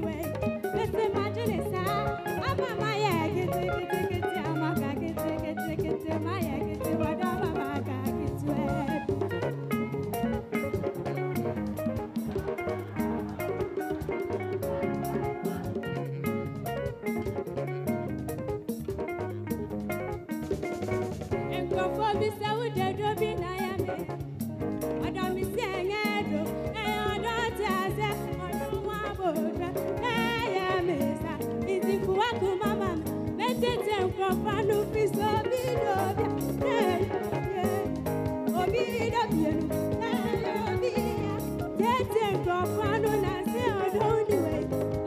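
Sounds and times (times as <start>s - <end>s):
girl singing into microphone: 0.0s - 9.4s, 21.5s - 24.1s, 25.0s - 44.7s
instrumental accompaniment: 0.0s - 45.0s.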